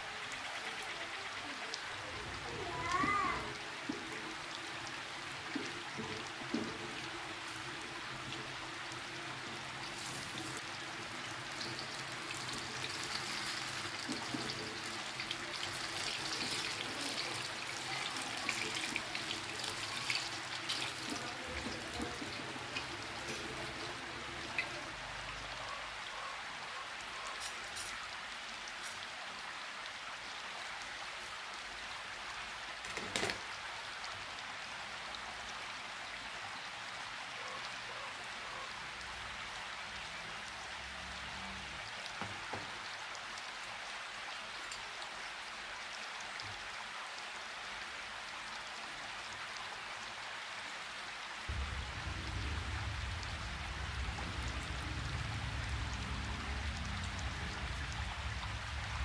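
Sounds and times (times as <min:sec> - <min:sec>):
hot oil sizzling: 0:02.1 - 0:25.2, 0:27.4 - 0:28.1, 0:32.8 - 0:33.4, 0:51.5 - 0:59.0.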